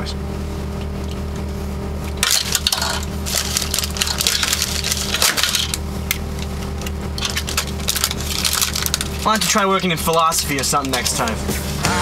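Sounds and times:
steady low hum: 0.0 - 12.0
objects clattering and knocking: 2.1 - 11.4.

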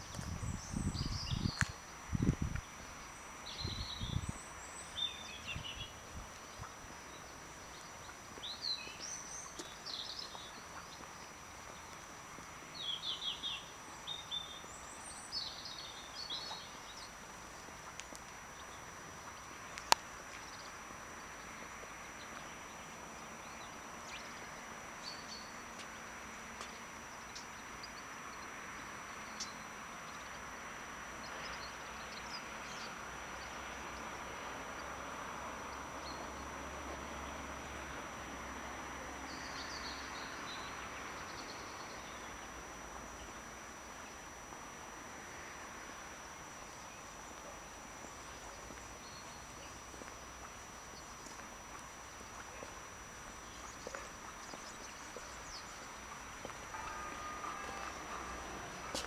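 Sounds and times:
small birds chirping: 0.0 - 26.0, 46.6 - 59.0
background hiss: 0.0 - 59.0.

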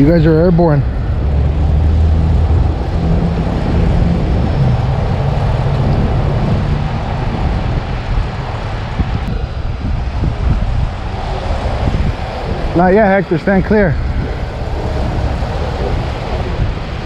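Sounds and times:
diesel engine running at raised revs: 0.0 - 9.5.

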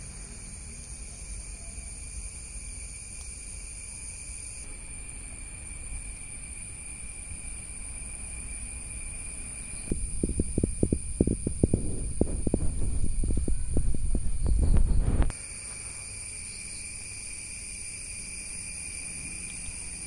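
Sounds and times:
insect chirring: 0.0 - 20.0
low rumble: 9.8 - 15.3
loud irregular low thumps: 9.9 - 15.3.

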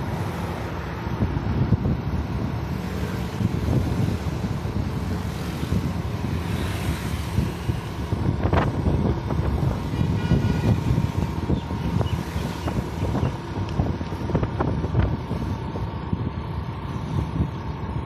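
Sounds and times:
road traffic: 0.0 - 18.0
wind rumbling on microphone: 0.0 - 18.0
vehicle horn toot: 9.9 - 11.0.

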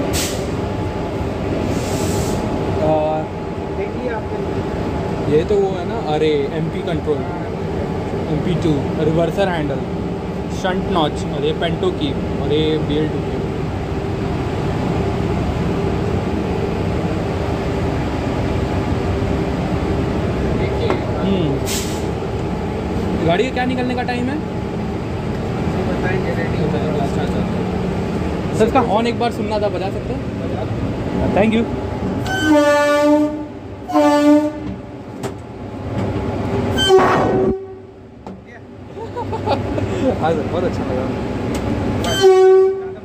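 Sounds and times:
hissing air burst: 0.0 - 0.6, 1.6 - 2.6, 21.6 - 22.2
locomotive machinery drone: 0.0 - 43.0
locomotive air horn blasts: 32.2 - 34.8, 36.7 - 37.9, 42.0 - 43.0.

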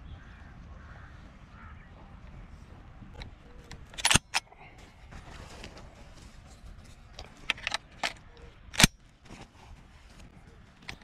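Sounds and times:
shotgun action metal clacks: 3.8 - 4.4, 7.2 - 9.0.

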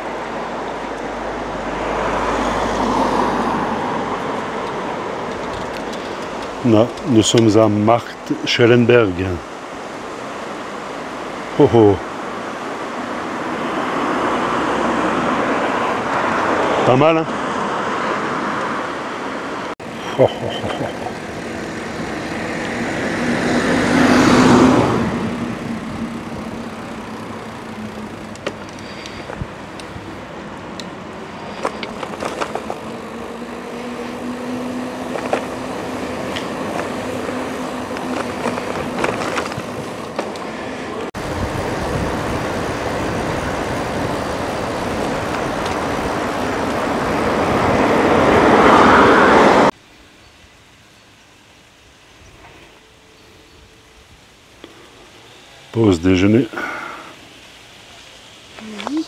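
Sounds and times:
car passing close by: 0.0 - 7.6, 12.1 - 20.0, 20.8 - 49.8
road traffic: 0.0 - 59.0
wind: 0.0 - 59.0.

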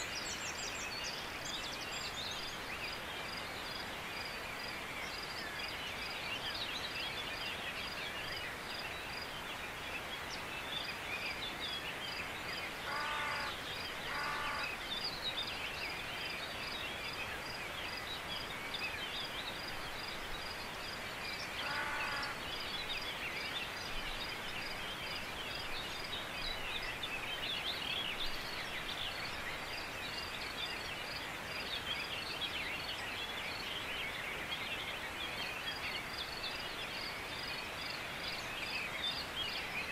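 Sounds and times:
birds chirping and calling: 12.6 - 16.0
bird calls with pitched runs: 12.8 - 15.0, 21.5 - 22.5.

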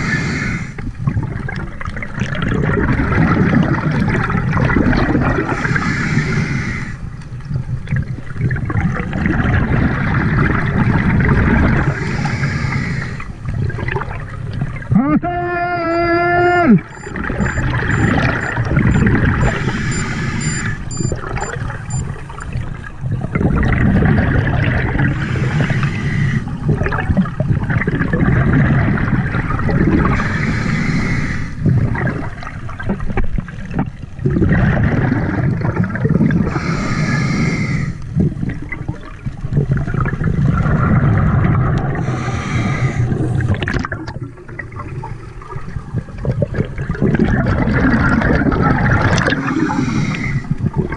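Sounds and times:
regulator inhale hiss: 0.0 - 0.8, 5.6 - 7.1, 11.9 - 13.3, 25.2 - 26.5, 30.2 - 31.7, 36.5 - 38.1, 42.0 - 43.4, 49.5 - 50.6
exhaled bubbles gurgling: 0.0 - 50.9.

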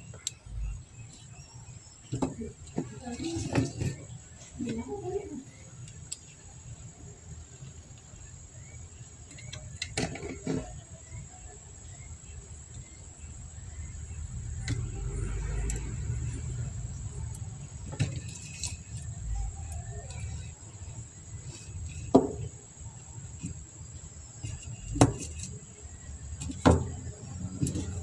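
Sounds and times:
low rumble: 13.4 - 17.9.

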